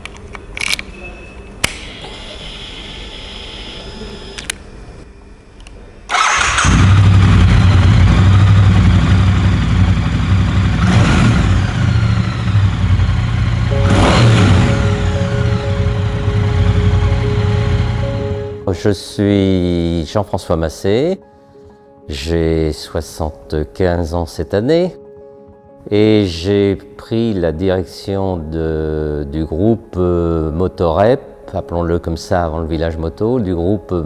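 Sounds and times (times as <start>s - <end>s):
motorcycle engine idling: 6.6s - 18.1s.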